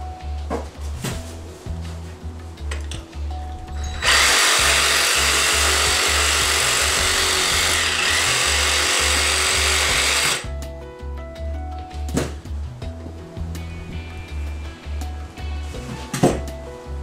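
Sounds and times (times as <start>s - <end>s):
reciprocating saw cutting carcass: 4.0s - 10.5s.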